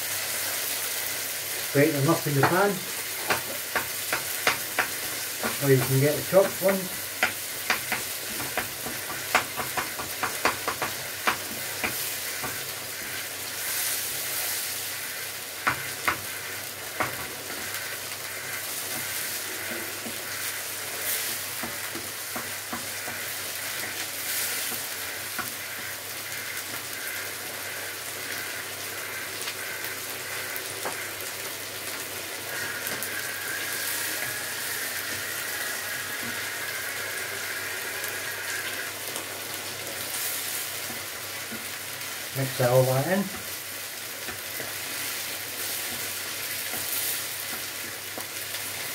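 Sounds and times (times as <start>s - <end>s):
food sizzling in a frying pan: 0.0s - 48.9s
spatula scraping and knocking pan: 2.0s - 13.2s, 15.6s - 17.8s, 18.4s - 25.9s.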